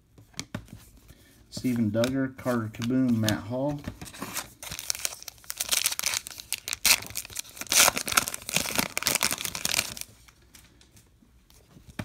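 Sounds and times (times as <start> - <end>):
foil wrapper tearing and crinkling: 4.4 - 10.1.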